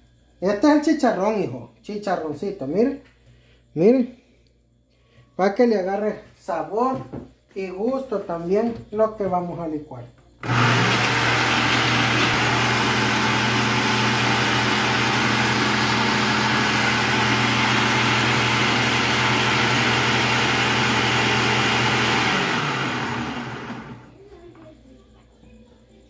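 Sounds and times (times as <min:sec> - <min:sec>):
blender running: 0:10.4 - 0:24.1.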